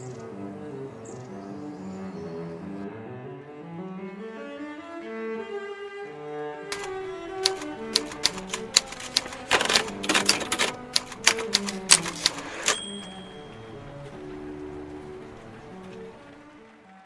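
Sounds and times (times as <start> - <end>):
string music: 0.0 - 17.0
typewriter keys clacking: 6.7 - 14.2
typewriter bell ring: 6.8 - 14.3.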